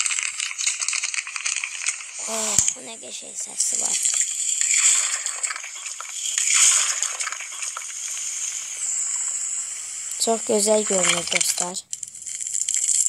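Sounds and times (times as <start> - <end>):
slime squishing and crackling: 0.0 - 2.8.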